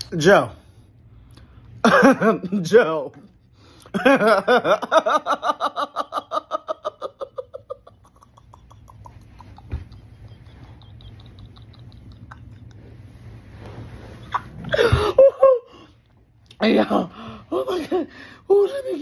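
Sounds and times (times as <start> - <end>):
man laughing hard: 4.0 - 12.6, 14.7 - 15.9.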